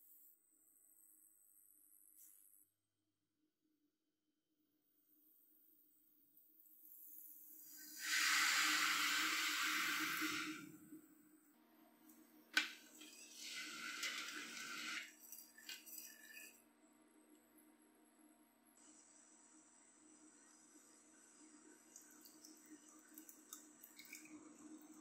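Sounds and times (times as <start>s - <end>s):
sugar pouring into water: 6.7s - 10.8s, 12.6s - 16.6s, 21.6s - 25.0s
whisk stirring in metal pot: 12.9s - 16.6s.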